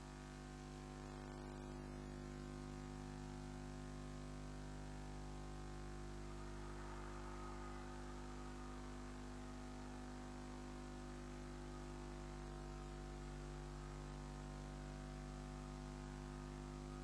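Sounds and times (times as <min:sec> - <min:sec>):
electrical hum and buzz: 0:00.0 - 0:17.0.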